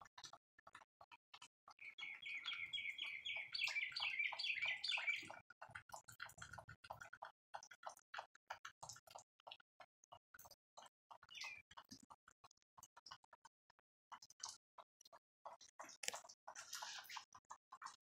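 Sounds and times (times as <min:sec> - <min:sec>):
rain dripping: 0:01.7 - 0:09.6
songbird chirping: 0:01.8 - 0:05.4, 0:11.3 - 0:11.6.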